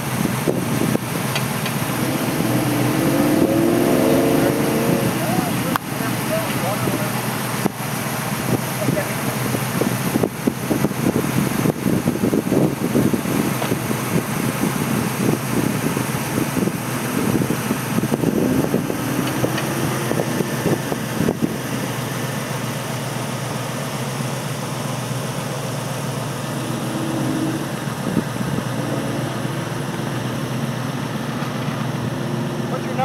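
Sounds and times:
car engine revving: 0.0 - 33.0
wind buffeting microphone: 9.6 - 22.0, 26.4 - 30.9.

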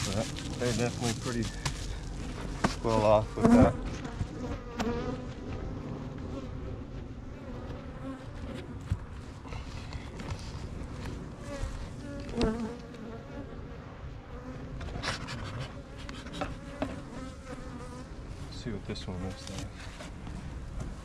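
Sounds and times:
bees buzzing: 2.0 - 8.9, 11.2 - 15.0, 15.6 - 18.3.

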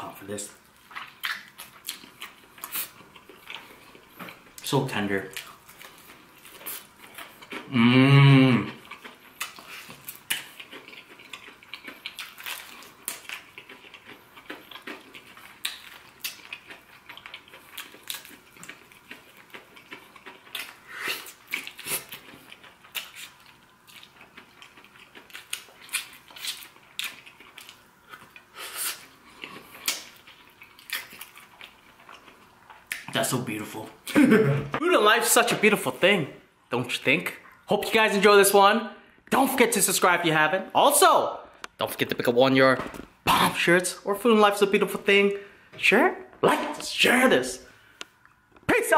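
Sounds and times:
wet chewing and lip smacks: 0.8 - 4.7, 8.7 - 33.2
man humming mmm: 7.6 - 8.8
meat being torn apart: 29.8 - 31.8.

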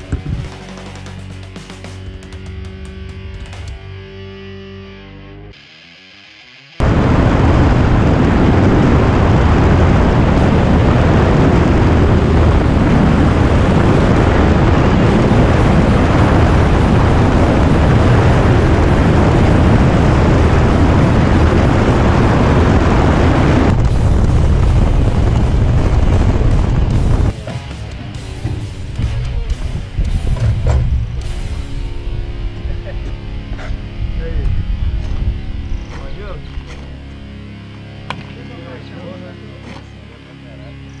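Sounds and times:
heavy wind rush: 6.8 - 27.4, 28.5 - 37.0
propeller engine droning: 6.8 - 41.0.

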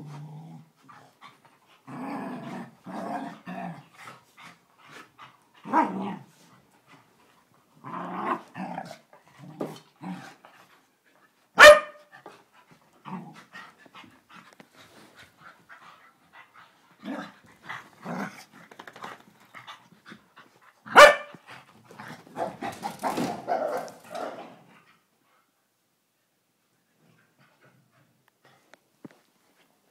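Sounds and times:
dogs barking: 11.6 - 12.0, 20.9 - 21.4.

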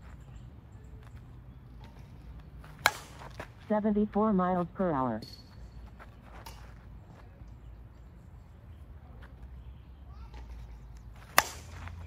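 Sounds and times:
low background noise: 0.0 - 12.0
bat striking a softball: 2.8 - 3.5, 10.3 - 12.0.

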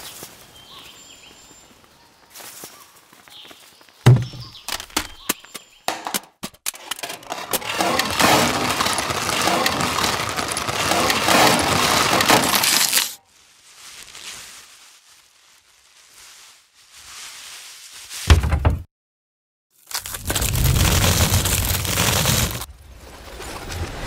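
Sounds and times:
low thud: 4.1 - 4.5
bottles tumbling and clattering: 6.9 - 13.1
faint rustle: 13.2 - 18.2.

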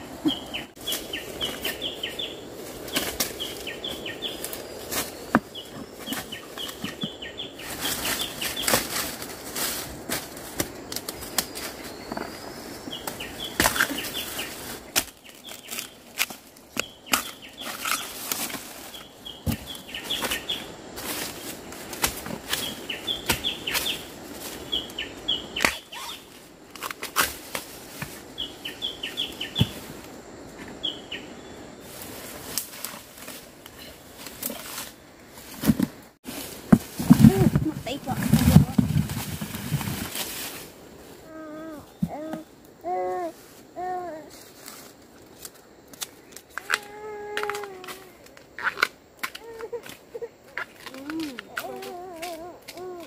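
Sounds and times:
dry leaves crunching and rustling: 0.7 - 30.1, 31.8 - 41.0.

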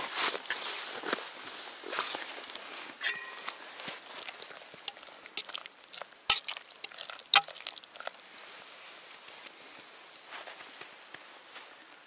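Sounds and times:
utensil clinking on metal pot: 3.0 - 3.7.

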